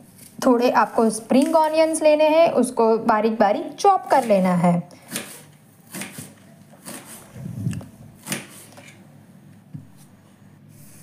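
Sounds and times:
knife chopping on countertop: 5.1s - 7.2s, 8.2s - 8.7s.

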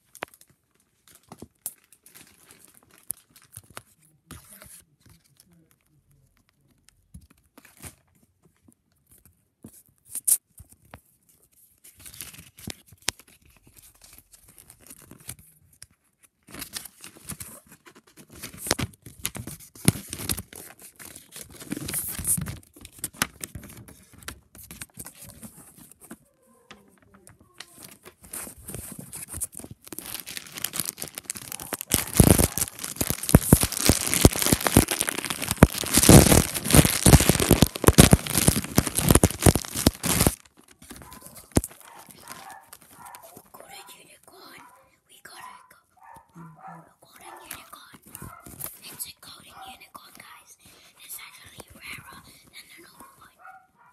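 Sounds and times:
foil packets tearing and crinkling: 0.0s - 3.8s, 18.2s - 23.8s, 27.8s - 43.4s.

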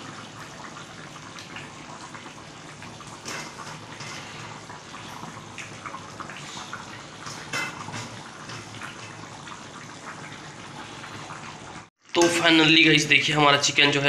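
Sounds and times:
curry simmering with hiss: 0.0s - 14.0s.

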